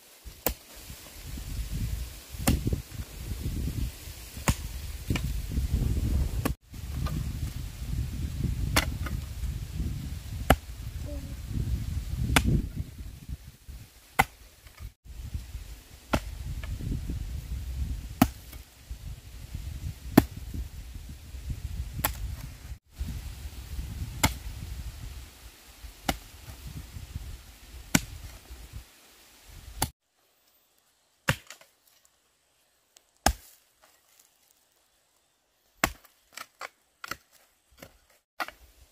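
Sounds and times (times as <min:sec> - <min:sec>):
sharp chopping strikes: 0:02.4 - 0:02.7, 0:04.4 - 0:05.3, 0:08.7 - 0:09.2, 0:10.5 - 0:10.7, 0:12.3 - 0:12.7, 0:14.2 - 0:14.4, 0:16.1 - 0:16.3, 0:18.2 - 0:18.6, 0:20.2 - 0:20.4, 0:22.0 - 0:22.2, 0:24.2 - 0:24.5, 0:26.1 - 0:26.3, 0:27.9 - 0:28.3, 0:31.2 - 0:31.7, 0:33.2 - 0:33.6, 0:35.8 - 0:37.2.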